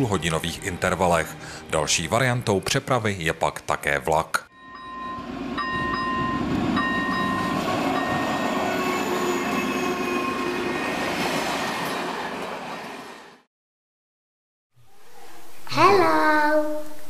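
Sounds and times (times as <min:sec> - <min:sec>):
train horn tones: 0:04.5 - 0:10.8
train rumbling past: 0:04.5 - 0:13.5.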